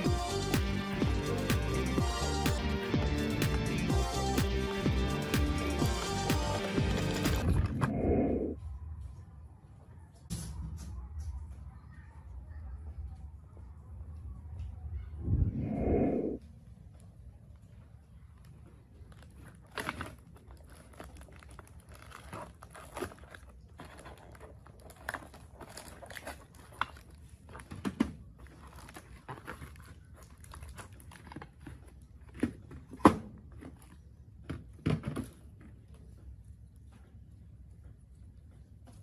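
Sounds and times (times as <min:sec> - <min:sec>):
cardboard box and tape crinkling: 0:18.2 - 0:36.0.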